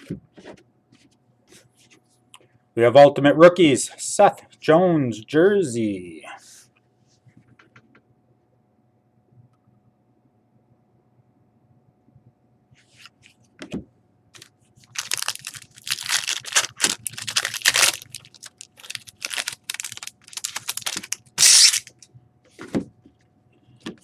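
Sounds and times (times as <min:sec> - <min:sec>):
plastic wrapper crinkling: 0:14.4 - 0:22.0.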